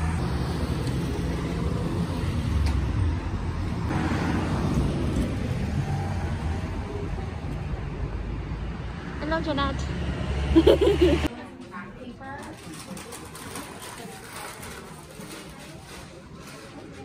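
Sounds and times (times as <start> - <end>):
car and truck engines: 0.0 - 11.3
pickup truck passing: 0.0 - 11.3
tyres on the road: 0.0 - 17.0.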